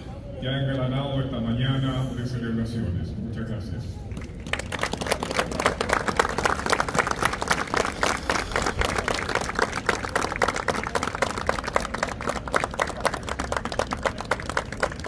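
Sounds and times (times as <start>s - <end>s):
audience applauding: 4.2s - 15.0s.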